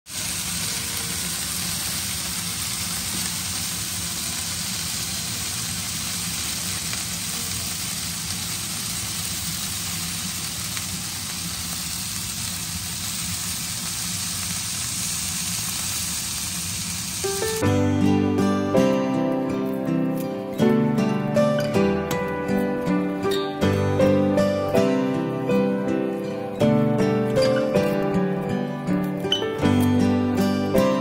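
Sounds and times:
vegetables sizzling in pan: 0.1s - 17.6s.

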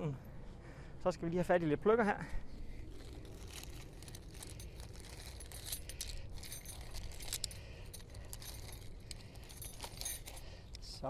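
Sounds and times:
metal tent pegs clinking: 2.8s - 11.0s.

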